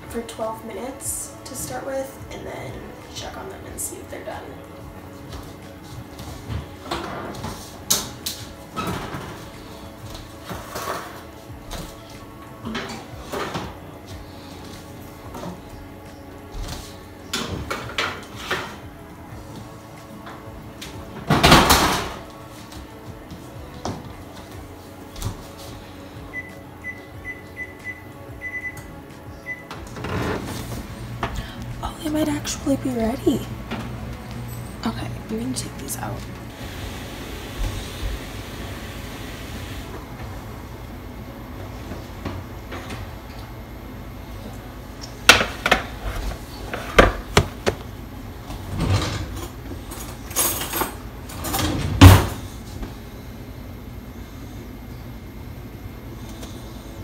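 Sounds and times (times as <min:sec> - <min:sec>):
oven door opening: 0:29.7 - 0:31.0.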